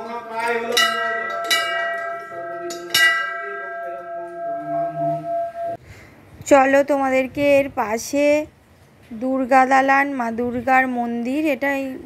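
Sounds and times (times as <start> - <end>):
temple bell ringing: 0.0 - 5.8.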